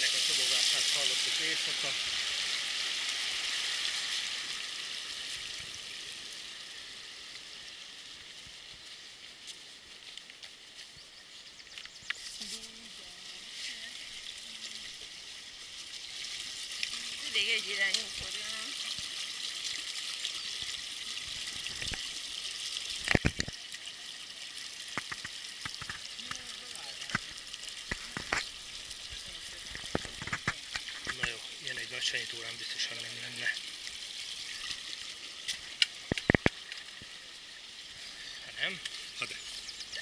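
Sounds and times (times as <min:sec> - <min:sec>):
stream rushing over rocks: 0:00.0 - 0:10.8, 0:12.6 - 0:33.6.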